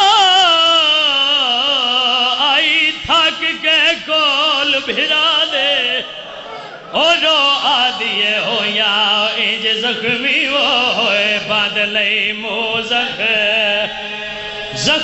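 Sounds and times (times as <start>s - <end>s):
man chanting over loudspeaker: 0.0s - 15.0s
low drone: 13.8s - 15.0s.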